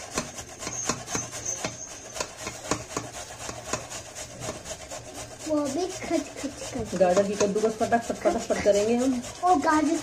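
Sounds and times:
carrots rasping on a grater: 0.0s - 10.0s.

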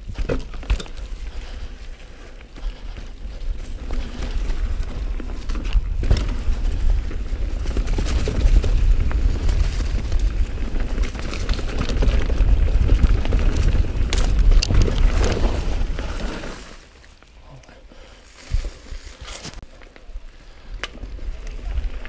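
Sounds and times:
bike clicking and rattling: 0.0s - 17.4s, 18.0s - 22.0s
bike tyres crunching over ground: 0.0s - 22.0s
wind buffeting microphone: 2.6s - 16.4s.

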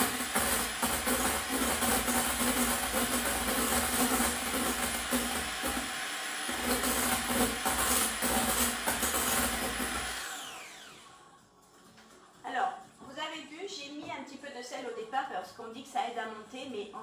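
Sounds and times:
electric hand mixer whirring: 0.0s - 11.2s.

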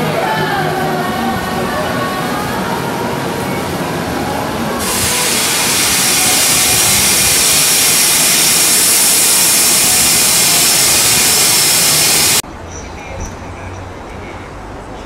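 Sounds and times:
rushing hiss of air: 4.8s - 12.4s.

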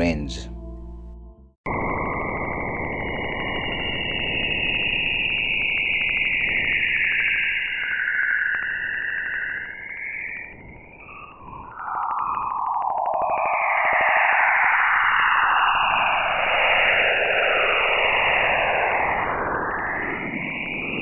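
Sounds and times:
eerie sliding tone: 1.8s - 21.0s.

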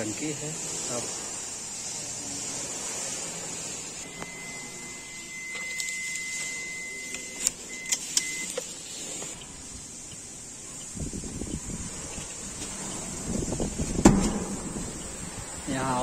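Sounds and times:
steady hiss: 0.0s - 16.0s
high electronic beep: 4.0s - 8.6s.

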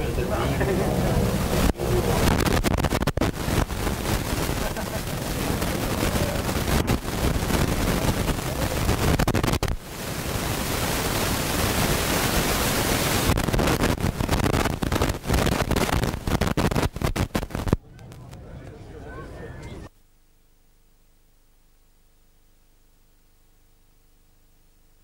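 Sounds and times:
wind on microphone: 0.0s - 18.4s
microphone crackles: 0.6s - 18.3s.

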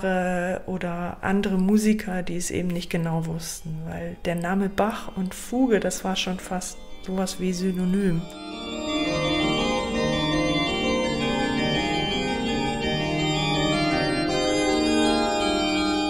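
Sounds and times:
organ music: 3.4s - 16.0s.

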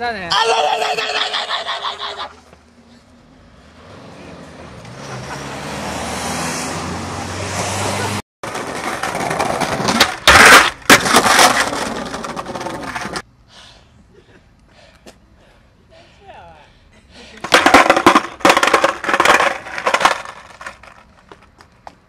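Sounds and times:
skateboard wheels rolling on concrete: 1.8s - 13.3s, 17.2s - 22.0s
car passing: 2.6s - 9.1s
skateboard clacks and grind on ledge: 8.5s - 13.2s, 17.4s - 21.4s.

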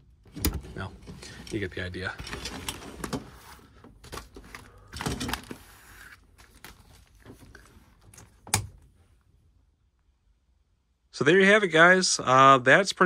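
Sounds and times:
fabric curtain rustling: 1.4s - 9.0s.

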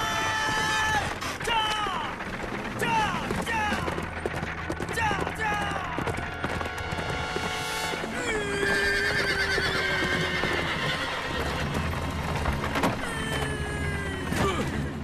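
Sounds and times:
hoofbeats clopping on dirt: 0.0s - 14.8s
horse whinnying: 7.0s - 14.8s.

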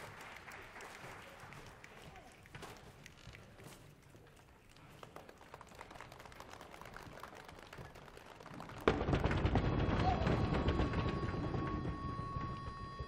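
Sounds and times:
faint crackling hall noise: 0.0s - 13.0s.

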